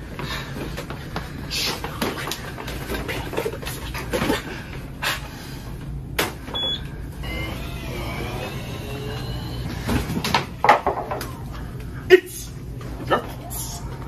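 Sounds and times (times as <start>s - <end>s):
electric motor whining: 7.2s - 9.7s.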